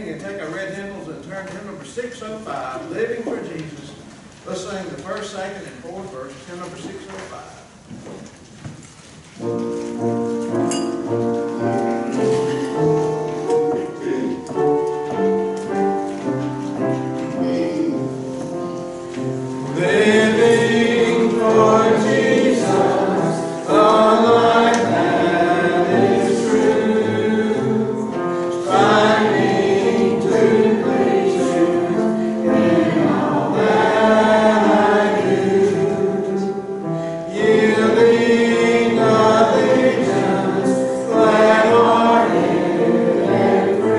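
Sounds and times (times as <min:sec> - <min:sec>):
congregation singing a hymn: 0:09.4 - 0:43.9.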